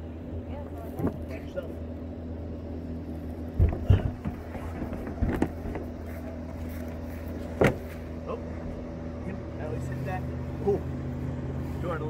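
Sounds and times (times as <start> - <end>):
steady low hum: 0.0 - 12.0
kayak thumping and knocking: 3.5 - 6.0, 7.5 - 8.0.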